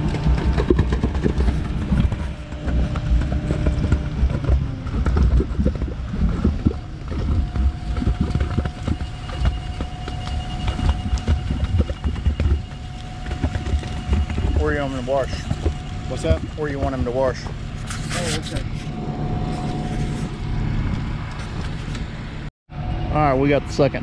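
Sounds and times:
concrete pump heavy knocking: 0.0 - 18.8.

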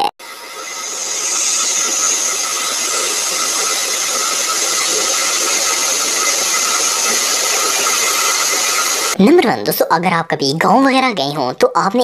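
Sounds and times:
faint steady whining tones: 0.2 - 9.2
hydraulic machinery hissing: 0.2 - 9.2.

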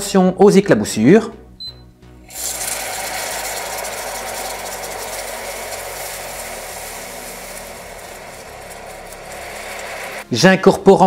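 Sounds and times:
caramel sizzling and bubbling: 2.3 - 10.3.

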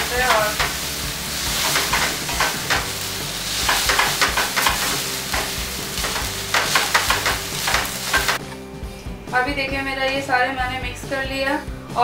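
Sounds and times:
spaghetti sizzling in oil: 0.0 - 8.4
utensils knocking and scraping pan: 0.1 - 8.4.

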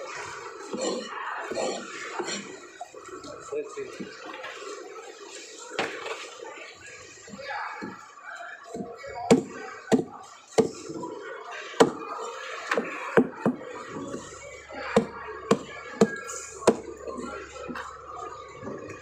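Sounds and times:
cleaver chopping on wooden block: 9.3 - 10.8, 11.8 - 12.0.

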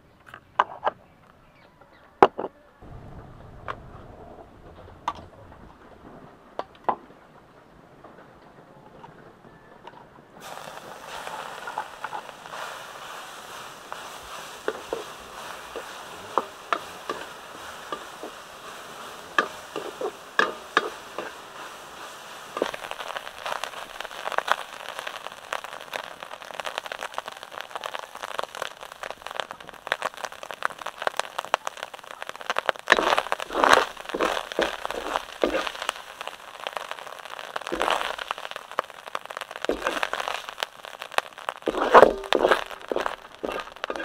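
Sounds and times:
meat sizzling in a wok: 10.4 - 44.0
spatula scraping and clacking on pan: 13.5 - 24.9, 32.9 - 36.9, 37.6 - 38.4, 41.6 - 44.0.

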